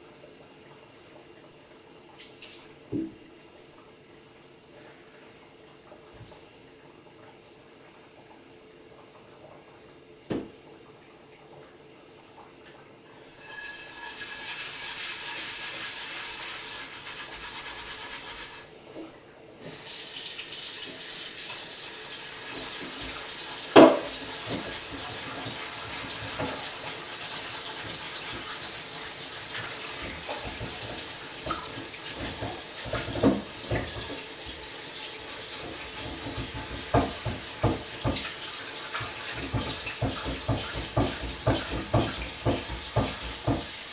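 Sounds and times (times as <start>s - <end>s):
tap water running: 0.0s - 43.9s
dishes clattering in sink: 13.4s - 15.6s, 22.5s - 26.8s, 29.9s - 34.3s, 35.6s - 43.8s.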